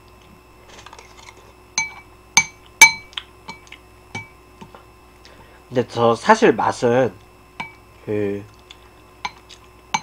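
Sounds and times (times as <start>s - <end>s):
cutlery clinking against bowls: 1.1s - 4.3s, 9.2s - 10.0s.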